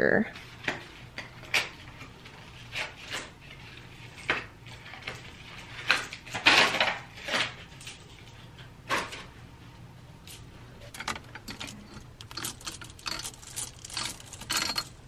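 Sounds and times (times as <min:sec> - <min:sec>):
plastic hangers clacking: 0:10.3 - 0:15.0.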